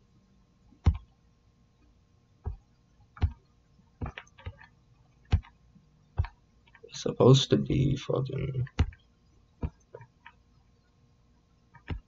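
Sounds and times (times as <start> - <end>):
keyboard and trackpad clicks: 4.0 - 5.6, 6.2 - 6.8, 8.6 - 9.0, 11.8 - 12.0.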